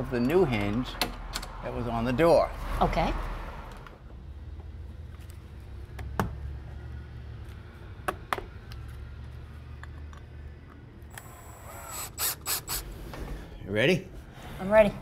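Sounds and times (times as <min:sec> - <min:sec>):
cordless drill driving screw: 0:11.1 - 0:12.9.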